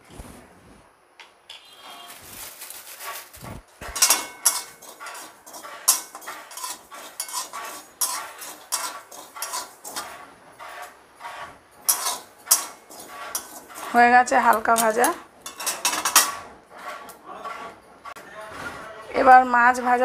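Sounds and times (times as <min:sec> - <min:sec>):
metal spatula scraping pan: 0:03.0 - 0:20.0.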